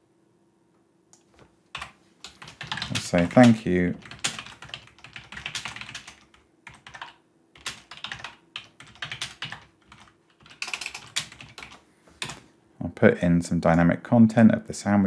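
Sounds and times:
typing on computer keyboard: 1.7s - 12.4s.

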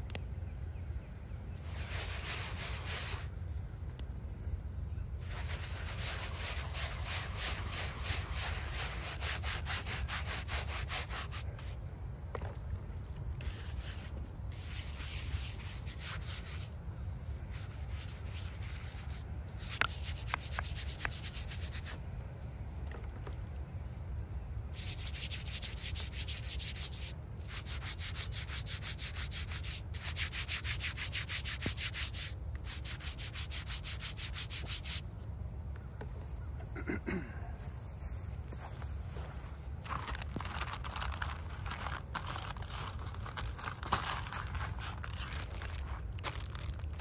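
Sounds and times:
brush scrubbing stone: 1.7s - 3.3s, 5.2s - 11.6s, 13.4s - 16.7s, 17.5s - 22.0s, 24.8s - 35.0s, 40.4s - 47.0s.

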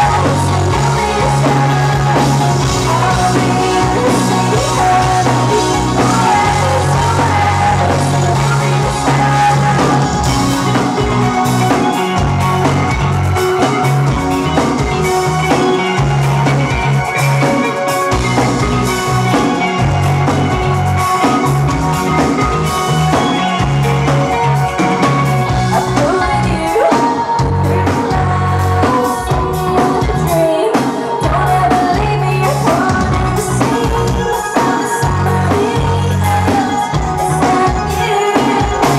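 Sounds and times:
woman singing lead vocal: 0.0s - 12.2s, 25.6s - 38.9s
bass guitar: 0.0s - 38.9s
drum kit: 0.0s - 38.9s
electric guitars: 0.0s - 38.9s.

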